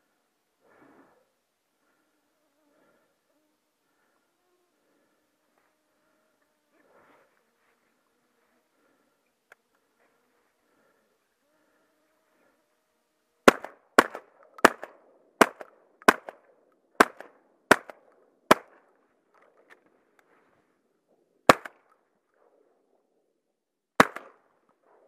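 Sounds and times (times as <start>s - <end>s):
shotgun blasts: 13.5s - 18.8s, 21.5s - 21.9s, 24.0s - 24.5s.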